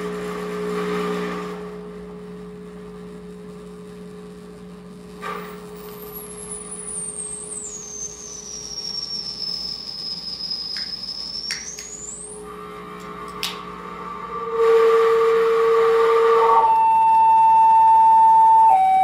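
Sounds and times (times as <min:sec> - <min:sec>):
high sliding whistling tone: 0:06.0 - 0:12.8, 0:13.9 - 0:19.0
low electronic drone: 0:11.0 - 0:19.0.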